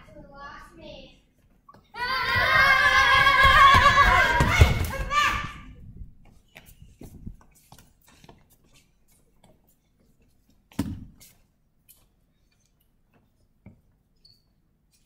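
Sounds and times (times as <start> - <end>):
children's footsteps on wooden floor: 1.7 - 5.4, 6.2 - 11.2.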